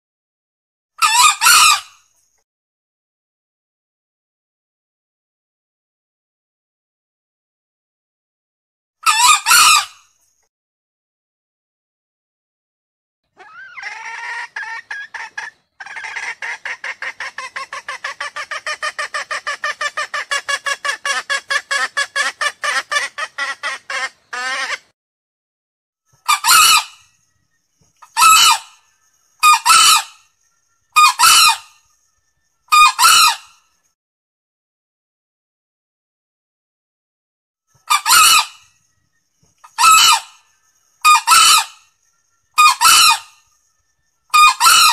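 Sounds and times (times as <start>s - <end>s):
junglefowl crowing: 1.0s - 1.9s, 9.0s - 10.0s, 13.4s - 24.9s, 26.3s - 27.0s, 28.1s - 28.8s, 29.4s - 30.2s, 31.0s - 31.7s, 32.7s - 33.6s, 37.8s - 38.6s, 39.7s - 40.4s, 41.0s - 41.8s, 42.6s - 43.4s, 44.3s - 44.9s
junglefowl rapid clucking: 13.4s - 24.9s, 44.3s - 44.9s.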